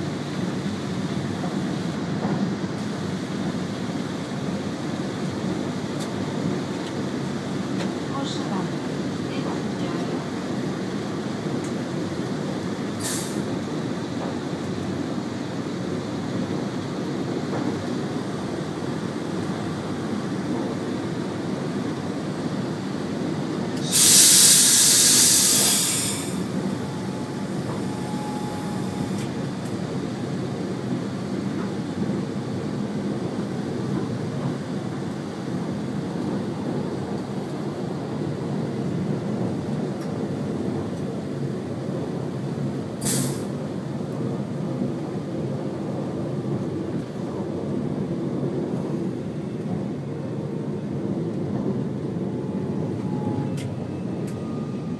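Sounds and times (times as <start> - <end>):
train rumble: 0.0 - 54.9
loud hiss: 23.8 - 29.2.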